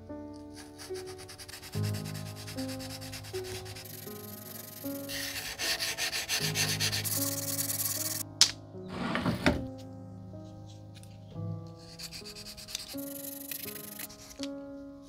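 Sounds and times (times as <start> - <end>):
whetstone scraping knife blade: 12.7 - 14.5.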